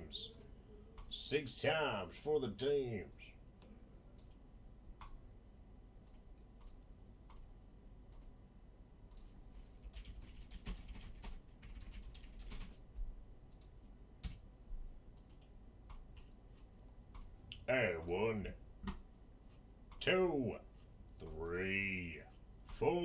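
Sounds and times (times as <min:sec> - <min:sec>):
computer keyboard typing: 0:09.1 - 0:12.8, 0:15.2 - 0:17.3.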